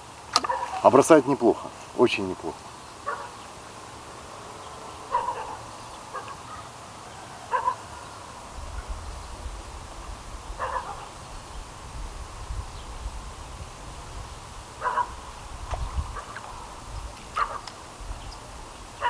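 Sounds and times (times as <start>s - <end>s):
animal barks or caws: 0.4s - 1.0s, 3.0s - 3.4s, 5.0s - 8.1s, 10.6s - 11.2s, 14.8s - 15.3s, 16.1s - 17.8s.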